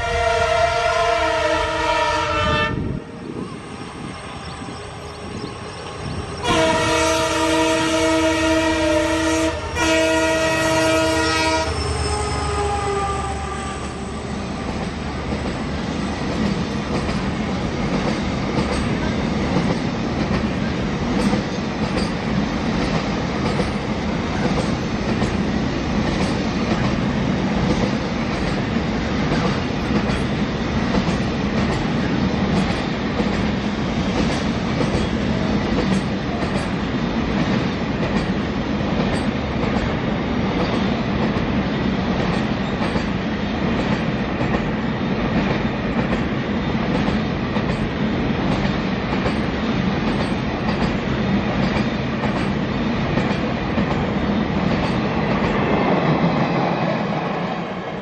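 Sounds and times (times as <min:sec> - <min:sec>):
locomotive horn blasts: 0:00.0 - 0:03.1, 0:06.4 - 0:14.0
wheels clacking over rail joints: 0:14.7 - 0:27.0, 0:27.6 - 0:41.5, 0:42.1 - 0:55.8.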